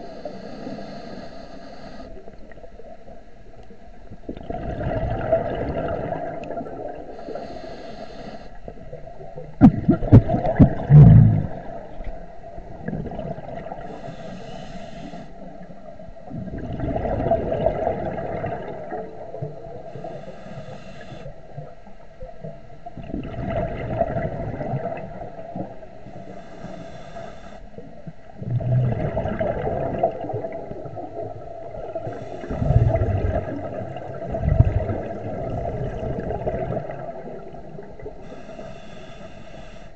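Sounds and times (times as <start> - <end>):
regulator inhale hiss: 0.0 - 2.4, 7.1 - 8.8, 13.8 - 15.8, 19.8 - 21.6, 25.9 - 27.9, 32.0 - 33.0, 38.2 - 39.9
exhaled bubbles rushing: 4.1 - 7.3, 8.7 - 14.0, 16.2 - 19.9, 23.0 - 25.8, 28.4 - 38.2.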